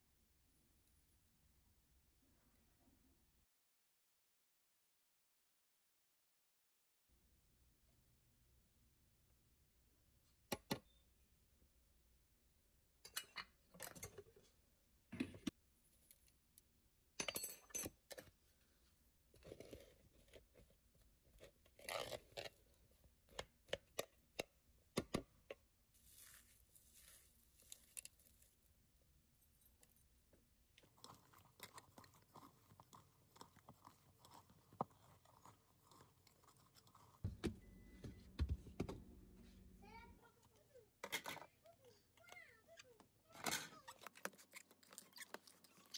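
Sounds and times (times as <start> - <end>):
food being mixed in a bowl: 18.2 - 38.8, 43.8 - 45.9
low steady hum: 37.2 - 40.2.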